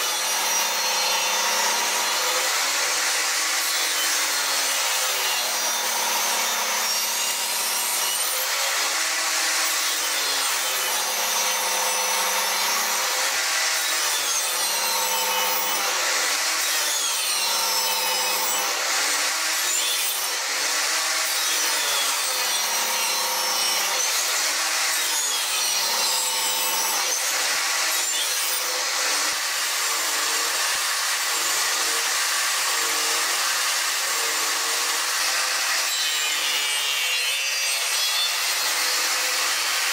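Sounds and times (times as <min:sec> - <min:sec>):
table saw cutting wood: 0:00.0 - 0:39.9.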